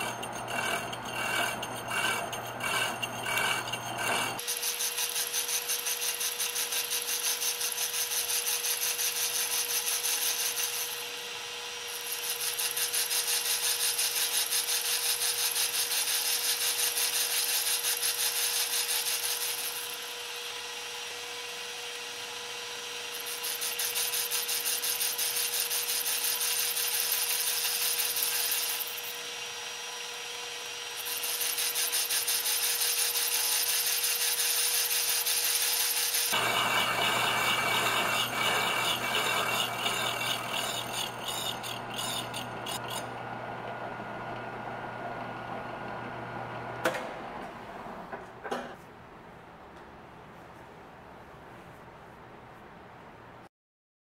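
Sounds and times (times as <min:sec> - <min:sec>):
milling cutter rasping metal: 0:00.0 - 0:43.2.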